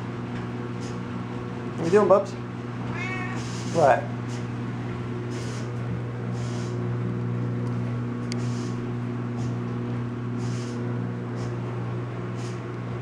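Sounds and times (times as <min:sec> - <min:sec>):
laundry machine humming: 0:00.0 - 0:13.0.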